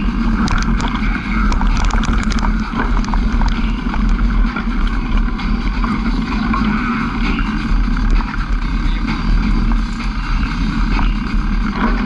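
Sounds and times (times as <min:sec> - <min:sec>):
vehicle engine running: 0:00.0 - 0:12.0
wind buffeting microphone: 0:00.0 - 0:12.0
small clicks and knocks: 0:00.4 - 0:04.2.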